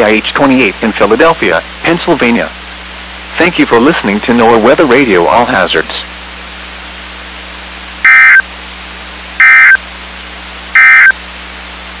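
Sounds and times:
steady hum and hiss: 0.0 - 12.0
buzzy digital tone bursts: 9.4 - 9.8, 10.8 - 11.2.

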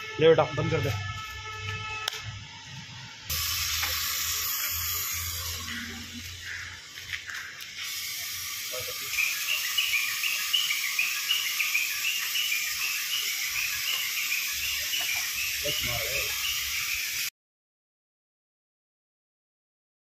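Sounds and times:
rapid chirping call: 3.3 - 17.3
steady hiss: 3.3 - 17.3.

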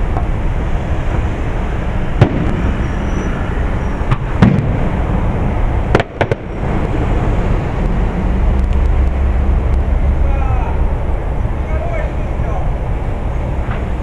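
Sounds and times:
low rumble: 0.0 - 14.0
fireworks bursting: 2.1 - 5.2, 5.8 - 6.9.

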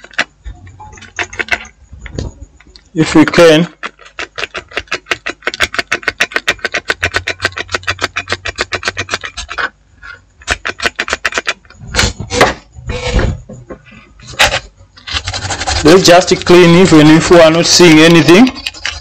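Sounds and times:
knocks and rubs of handling: 0.0 - 19.0
stiff brush scrubbing: 3.2 - 11.6, 15.0 - 19.0.

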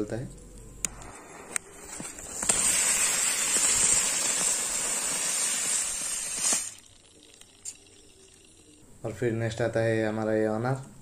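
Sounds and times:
spinning firework hissing: 0.9 - 8.9.

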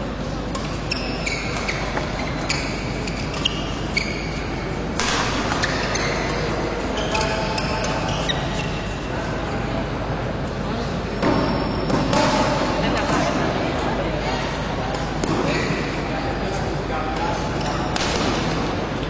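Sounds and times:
sports shoes squeaking: 0.5 - 9.1, 11.1 - 12.6, 15.0 - 18.6.

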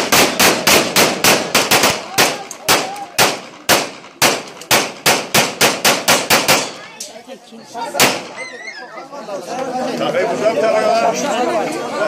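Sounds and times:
rapid sharp ringing bangs: 0.0 - 6.9.

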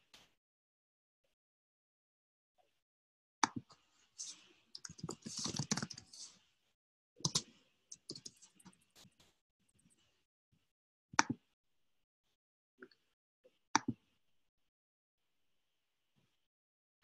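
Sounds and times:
computer keyboard typing: 4.8 - 6.3, 7.2 - 8.8.

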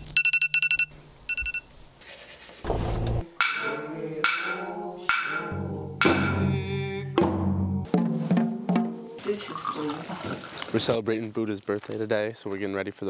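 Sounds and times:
clicks and beeps: 0.0 - 1.7.

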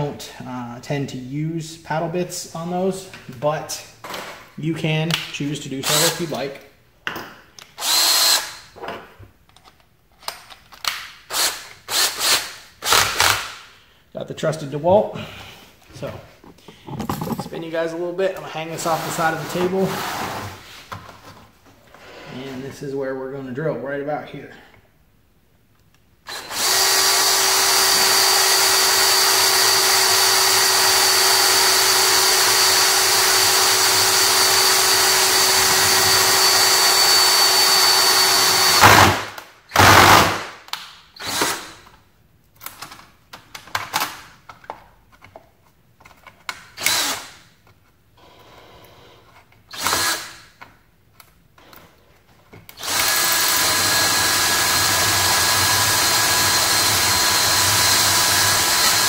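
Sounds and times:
cordless drill boring through plastic: 7.8 - 8.6, 11.3 - 13.4, 26.3 - 39.2, 39.8 - 40.4, 41.2 - 41.7, 46.8 - 47.3, 49.7 - 50.4, 52.7 - 59.0.

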